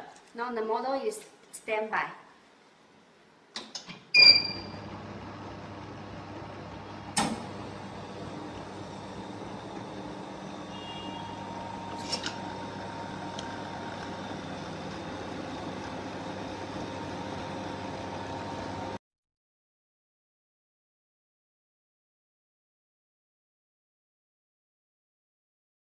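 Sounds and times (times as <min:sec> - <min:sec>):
ice cream machine humming: 0:04.2 - 0:19.0.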